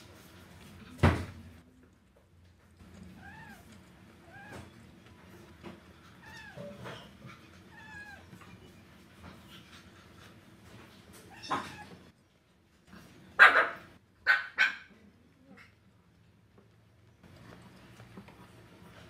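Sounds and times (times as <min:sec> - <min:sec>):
cat meowing: 0:03.0 - 0:04.8, 0:06.2 - 0:08.3, 0:11.3 - 0:12.0.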